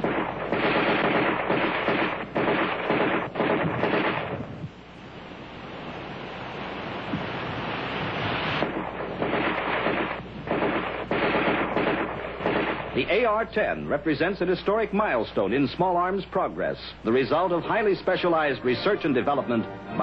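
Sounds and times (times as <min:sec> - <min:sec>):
rifle automatic fire: 0:00.0 - 0:04.6, 0:08.6 - 0:13.3.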